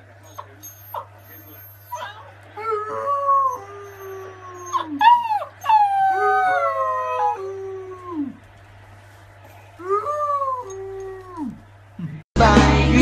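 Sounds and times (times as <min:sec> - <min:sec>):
puppy howling: 0:00.4 - 0:08.4, 0:09.8 - 0:11.6.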